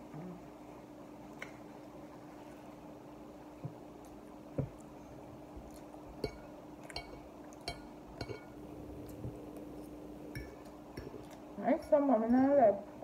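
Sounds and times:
steady low hum: 0:00.0 - 0:13.0
fork clinking on ceramic plate: 0:06.2 - 0:09.2, 0:10.3 - 0:11.3.

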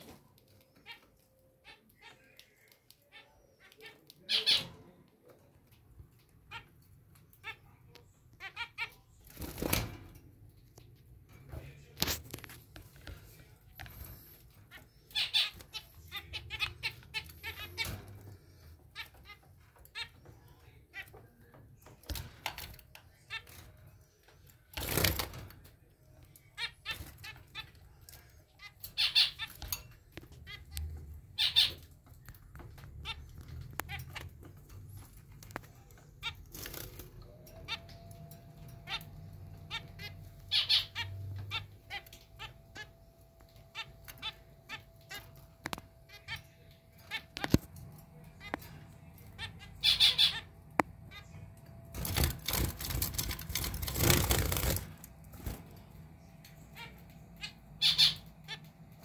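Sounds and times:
finches calling: 0:39.7 - 0:43.0, 0:56.6 - 0:58.6.

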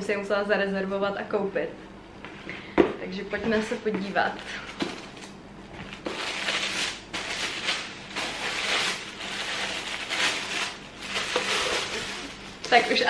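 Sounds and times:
tissue paper rustling: 0:05.8 - 0:13.0.

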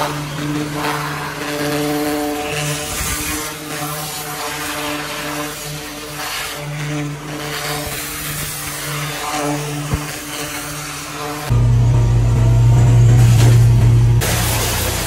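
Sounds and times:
pressure washer spray hissing: 0:00.0 - 0:11.5, 0:13.2 - 0:15.0
engine hum: 0:11.4 - 0:15.0.

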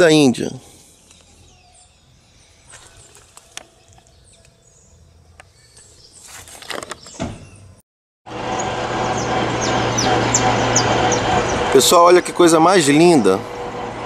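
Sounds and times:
bird chirps: 0:00.9 - 0:07.8
rustling of handling or footsteps: 0:02.6 - 0:04.6, 0:05.8 - 0:07.2.

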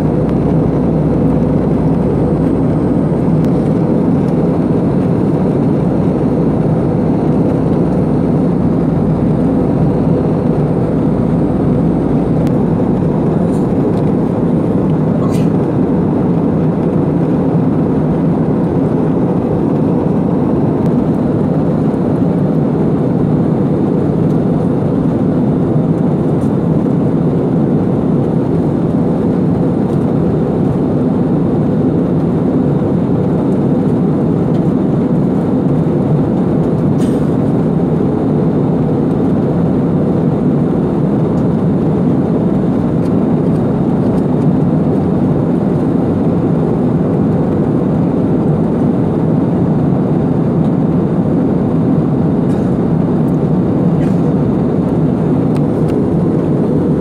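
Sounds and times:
airliner cabin rumble: 0:00.0 - 0:57.0.

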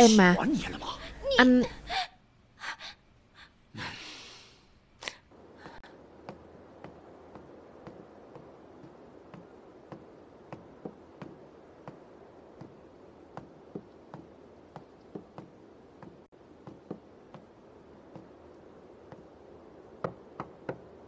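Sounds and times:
faint background hiss: 0:00.0 - 0:21.0.

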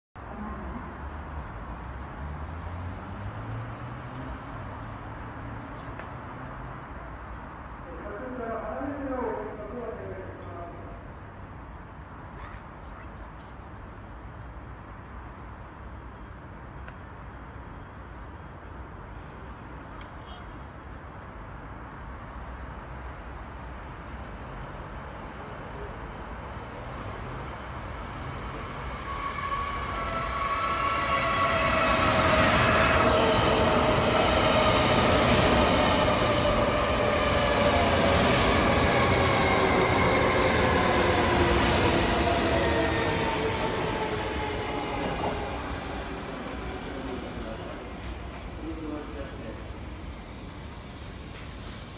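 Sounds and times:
station and city rumble: 0:00.2 - 0:51.9
train whine of steady tones: 0:06.8 - 0:51.9
train rushing past: 0:22.8 - 0:51.9.

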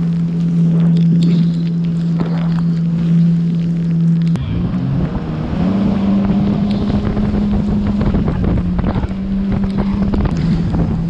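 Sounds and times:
jet ski engine running: 0:00.0 - 0:11.0
wind rushing over microphone: 0:04.4 - 0:11.0.

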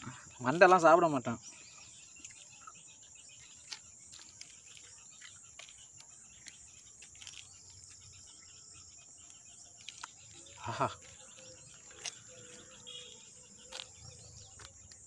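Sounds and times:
insect chorus drone: 0:00.0 - 0:15.0
chewing clicks and smacks: 0:03.6 - 0:07.6, 0:09.8 - 0:12.7.

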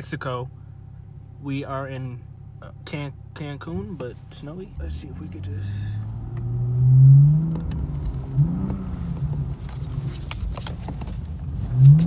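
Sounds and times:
car engine revving hard: 0:04.8 - 0:09.5, 0:11.7 - 0:12.0.

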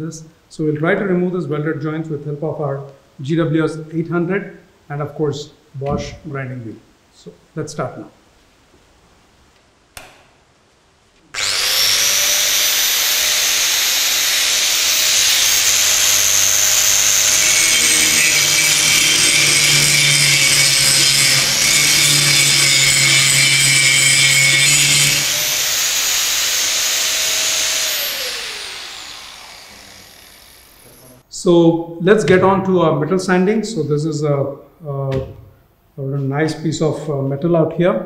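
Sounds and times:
angle grinder whining: 0:11.3 - 0:31.2
grinder grinding steel: 0:11.4 - 0:31.2.

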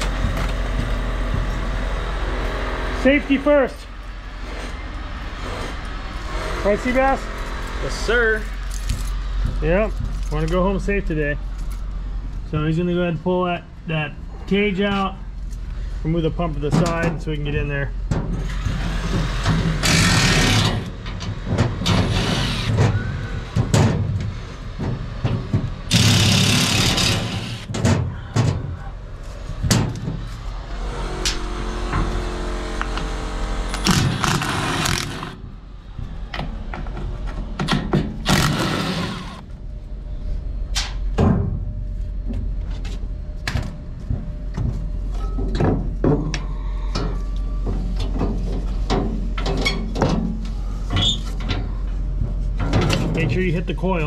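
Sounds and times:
steady low hum: 0:00.0 - 0:54.0
metal clanks and knocks: 0:18.1 - 0:28.9, 0:29.6 - 0:30.3, 0:43.4 - 0:53.5
impact driver running: 0:18.6 - 0:20.9, 0:25.9 - 0:27.7, 0:30.9 - 0:35.4, 0:38.2 - 0:39.4.

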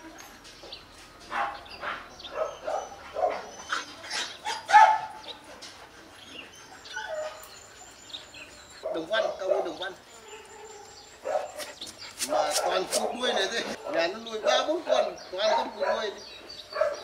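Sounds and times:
dog barking: 0:01.3 - 0:03.5, 0:04.5 - 0:05.2, 0:08.8 - 0:11.6, 0:16.8 - 0:17.0.

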